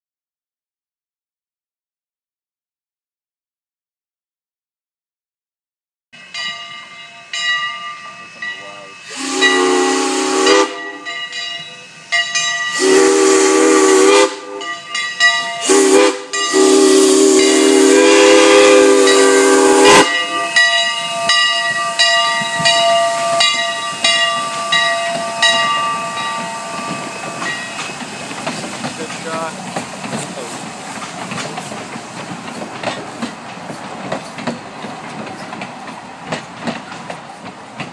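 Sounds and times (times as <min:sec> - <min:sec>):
train clattering past: 0:06.2 - 0:37.9
steam hissing: 0:07.8 - 0:37.9
steam whistle blasts: 0:09.0 - 0:11.2, 0:12.7 - 0:14.7, 0:15.6 - 0:21.4.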